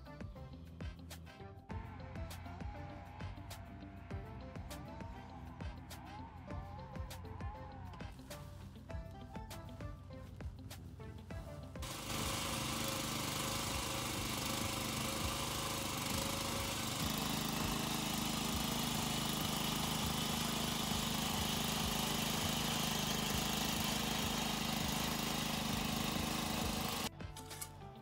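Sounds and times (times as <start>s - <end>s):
garden tiller engine running: 8.4s - 27.8s.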